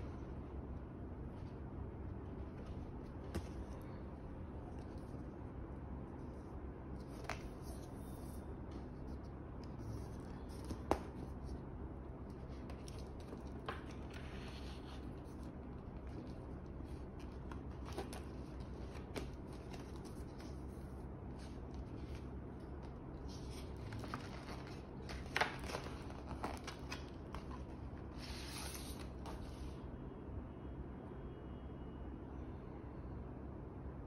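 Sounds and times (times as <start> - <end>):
steady low hum: 0.0 - 34.0
paper inserts rustling and sliding: 6.2 - 11.6, 12.2 - 29.8.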